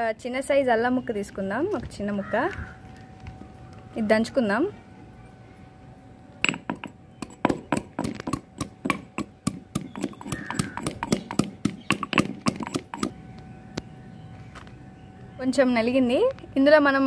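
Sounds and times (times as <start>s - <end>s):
stone pestle pounding in mortar: 6.5s - 13.2s.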